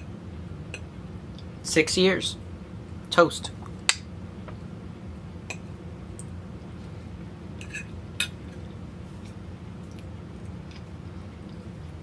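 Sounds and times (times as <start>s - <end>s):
low steady hum: 0.0s - 12.0s
fork clinking on ceramic plate: 7.6s - 8.4s.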